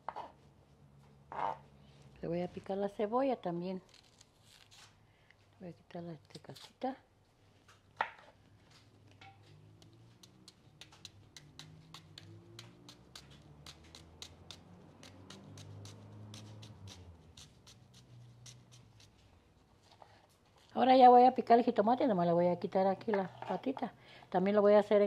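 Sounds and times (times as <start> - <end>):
knife cutting onion: 9.8 - 19.2.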